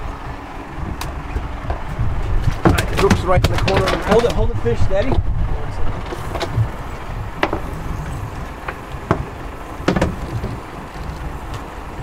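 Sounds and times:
steady low rumble: 0:00.0 - 0:12.0
knocks on boat deck: 0:01.6 - 0:04.4, 0:07.4 - 0:07.8, 0:08.6 - 0:10.6.

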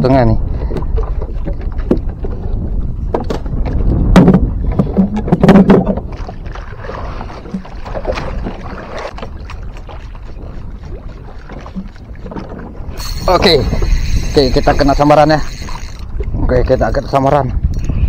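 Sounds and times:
water around hull: 0:00.0 - 0:18.0
wind: 0:00.0 - 0:18.0.

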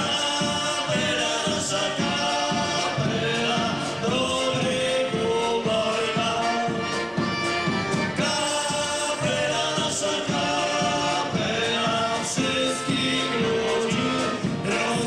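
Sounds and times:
accordions: 0:00.0 - 0:15.0
drum beat: 0:00.0 - 0:15.0
men singing folk song: 0:00.0 - 0:15.0.

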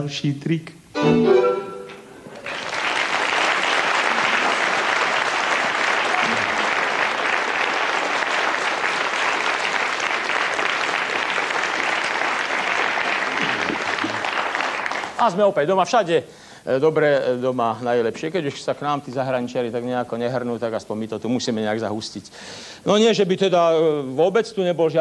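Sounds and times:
audience applauding: 0:02.2 - 0:15.4.

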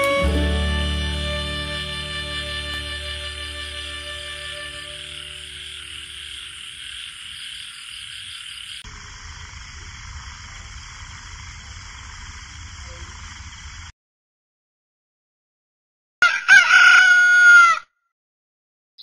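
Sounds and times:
crickets chirping: 0:03.5 - 0:13.9
frogs croaking: 0:03.8 - 0:13.9.

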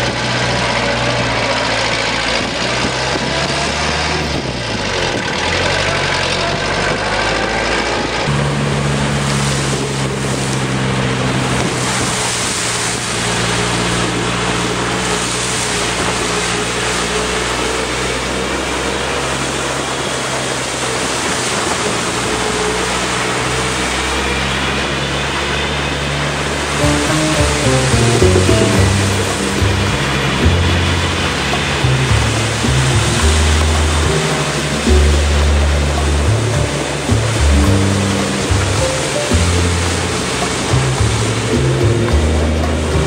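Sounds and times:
jeep engine revving: 0:00.0 - 0:12.2
background music: 0:26.7 - 0:43.0.

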